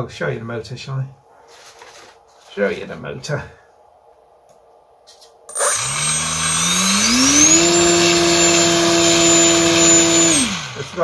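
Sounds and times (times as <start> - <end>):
model plane electric motor whine: 5.5 - 11.0.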